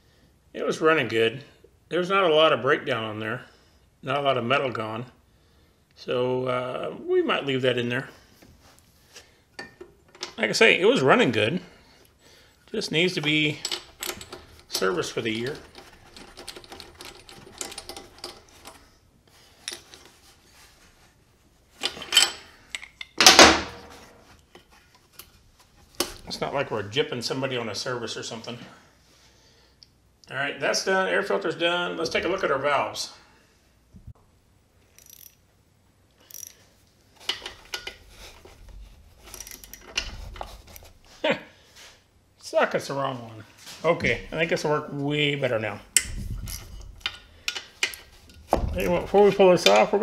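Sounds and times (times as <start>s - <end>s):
metal hand tools clinking: 13.2s - 18.8s
light metal clicks and scrapes: 36.3s - 41.1s.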